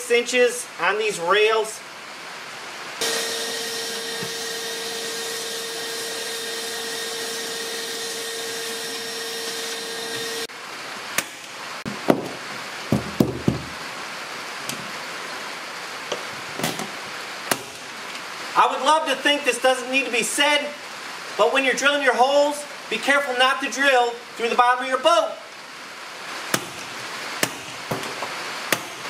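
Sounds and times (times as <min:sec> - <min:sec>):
shop vacuum whining: 0:03.0 - 0:10.5.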